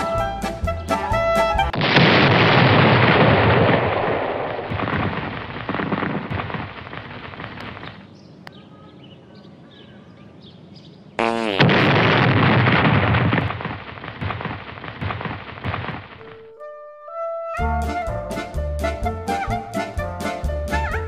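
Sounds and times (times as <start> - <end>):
rumbling explosion blast: 1.7 - 7.6, 11.6 - 16.1.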